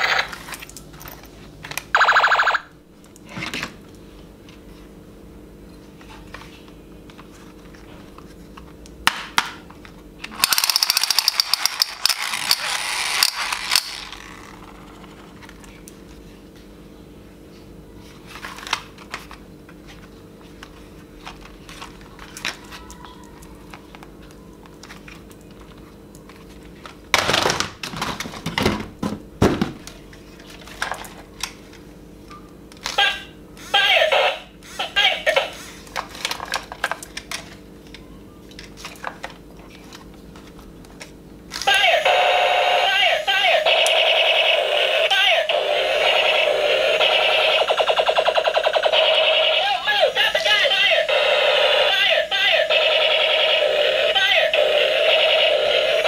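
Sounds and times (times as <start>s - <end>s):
steady low hum: 0.0s - 27.2s
plastic toy guns clattering: 10.3s - 14.4s.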